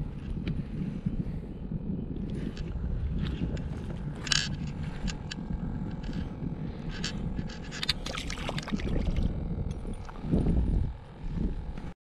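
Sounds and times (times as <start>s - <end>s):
wind buffeting microphone: 0.0s - 12.0s
sharp clicks and rustles: 2.3s - 10.4s.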